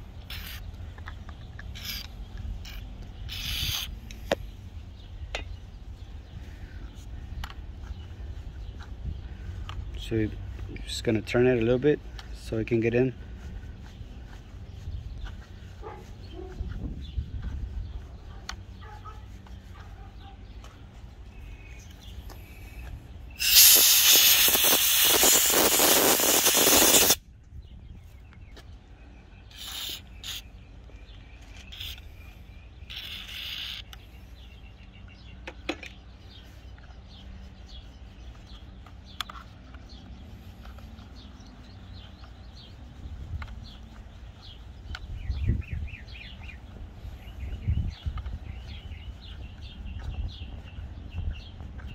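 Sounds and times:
short aerosol squirts: 0.3s - 0.7s, 1.7s - 4.0s, 23.3s - 27.2s, 29.5s - 30.5s, 31.6s - 32.2s, 32.8s - 34.1s
aerosol spray hissing: 23.4s - 27.2s, 29.5s - 30.5s, 32.9s - 33.9s.

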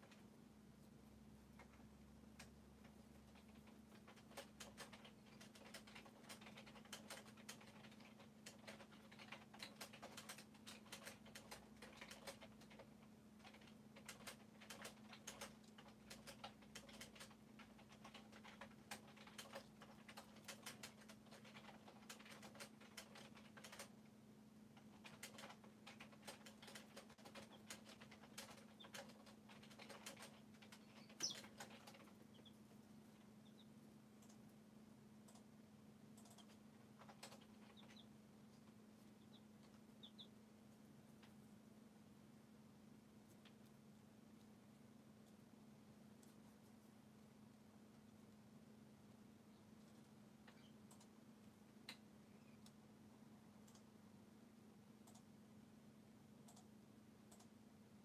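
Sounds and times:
chicks pecking and scratching: 0.0s - 54.0s
chick peeping: 27.3s - 33.9s, 36.4s - 38.2s, 39.0s - 40.4s.

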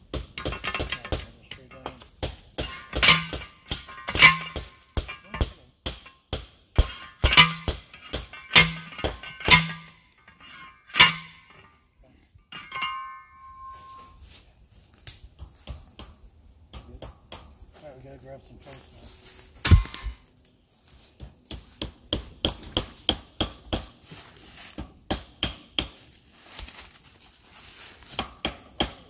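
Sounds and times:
post driver clanging on metal: 0.3s - 2.0s, 2.6s - 11.8s, 12.5s - 14.2s, 19.7s - 20.2s
light ringing clink: 12.5s - 14.2s.

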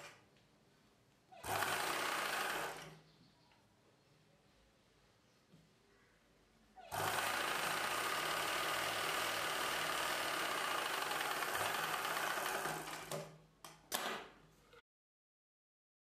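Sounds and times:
sewing machine stitching: 1.4s - 3.0s, 6.8s - 13.4s.

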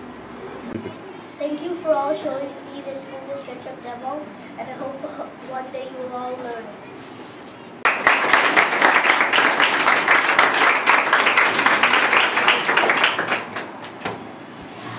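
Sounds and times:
children applauding: 7.8s - 14.0s.

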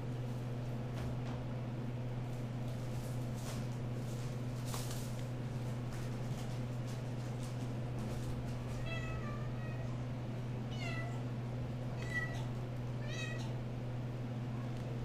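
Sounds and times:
kittens meowing: 11.9s - 13.6s.

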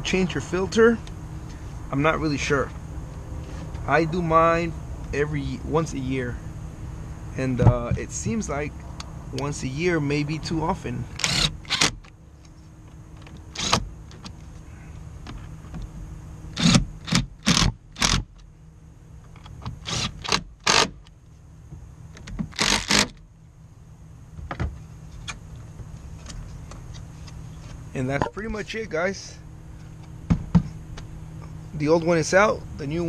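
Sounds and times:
electric screwdriver whirring: 11.2s - 12.0s, 22.6s - 23.1s.

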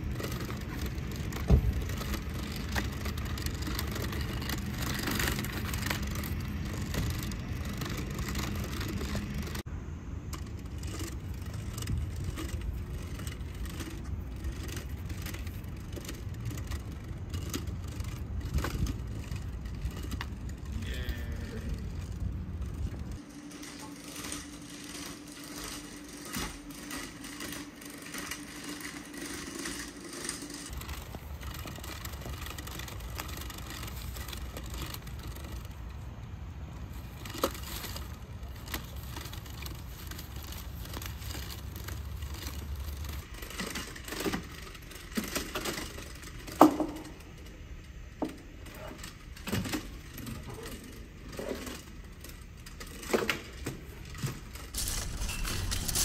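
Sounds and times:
robot hum: 20.4s - 28.6s.

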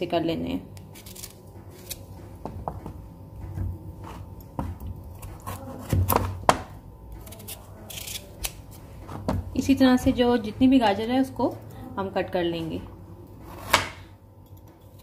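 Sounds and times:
knife cutting carrots: 1.0s - 2.3s, 4.0s - 6.6s, 7.2s - 9.2s.

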